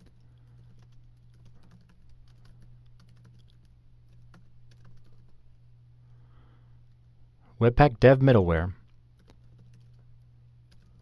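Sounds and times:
keyboard typing: 0.0 - 5.4, 8.9 - 11.0
low electrical hum: 0.0 - 11.0.

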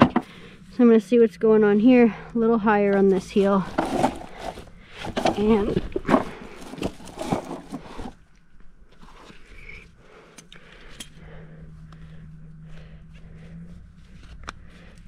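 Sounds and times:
faint steady hum: 0.0 - 15.0
hoof pick scraping hoof: 2.8 - 8.2.

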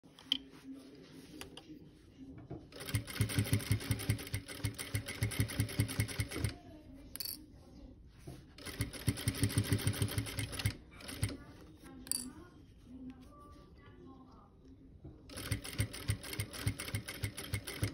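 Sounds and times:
sewing machine stitching: 2.7 - 6.6, 8.6 - 11.4, 15.3 - 17.9.

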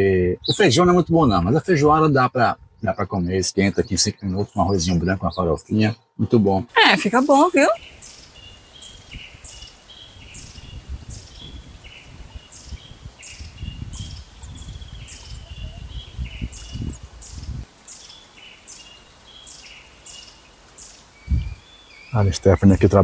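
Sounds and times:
lower bird chirps: 0.0 - 1.9, 2.5 - 6.4, 7.1 - 23.0
wind rumbling on microphone: 0.0 - 3.3, 8.0 - 17.7, 21.2 - 23.0.

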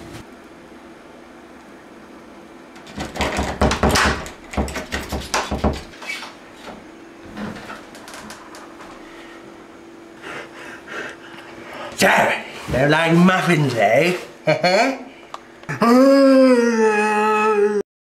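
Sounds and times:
door handle and door rattling: 2.8 - 5.9.

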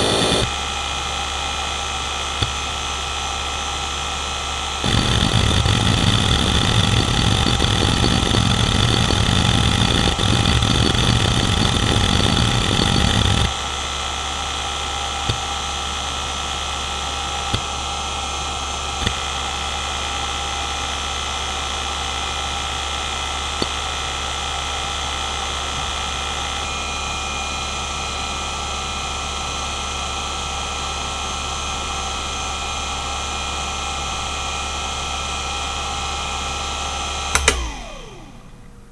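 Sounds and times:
hard drive spindle whine: 0.0 - 38.9
hard drive seek chatter: 4.8 - 13.5
hard drive head clicks: 37.4 - 37.9.

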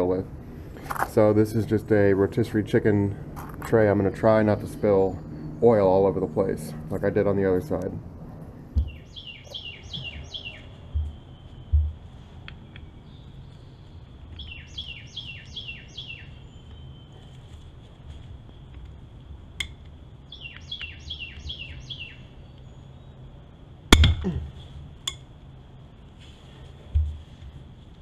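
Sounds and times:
faint steady hum: 0.0 - 28.0
songbird descending chirps: 8.8 - 17.6, 20.3 - 23.3.

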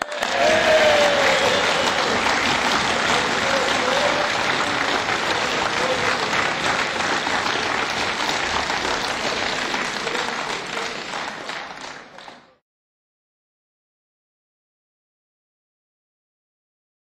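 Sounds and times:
crowd applauding: 0.0 - 12.6.

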